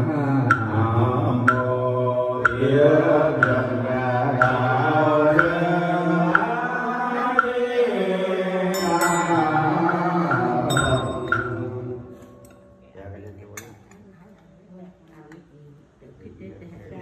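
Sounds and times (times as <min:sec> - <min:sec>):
chanting through microphone: 0:00.0 - 0:13.3
small bell struck: 0:08.7 - 0:10.0, 0:10.7 - 0:13.0.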